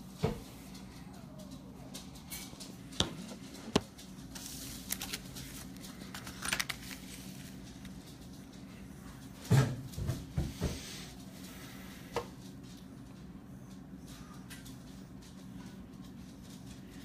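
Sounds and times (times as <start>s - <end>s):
steady low hum: 0.0s - 17.0s
crinkly rustle: 0.5s - 9.4s.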